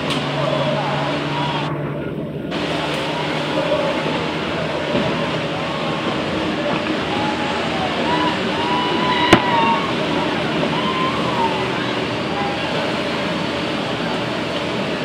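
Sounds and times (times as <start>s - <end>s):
outboard motors droning: 0.0s - 15.0s
sharp bang: 9.3s - 9.9s.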